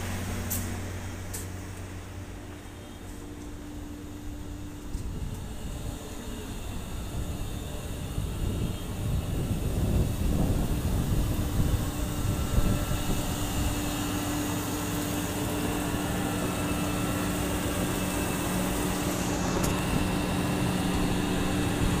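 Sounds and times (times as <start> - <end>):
exhaust blowers humming: 0.0 - 22.0.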